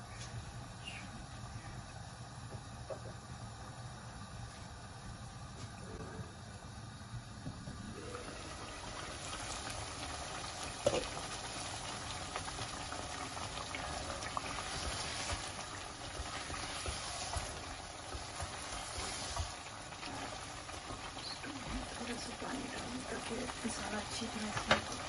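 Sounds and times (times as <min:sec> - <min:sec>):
curry bubbling and sizzling: 0:07.1 - 0:25.0
spatula stirring pot: 0:12.5 - 0:24.8.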